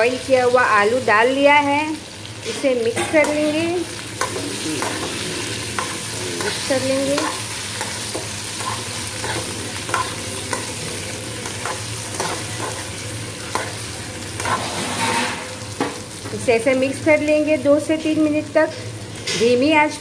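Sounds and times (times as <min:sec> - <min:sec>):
potatoes sizzling in oil: 0:00.0 - 0:20.0
spatula scraping pan: 0:03.0 - 0:15.6.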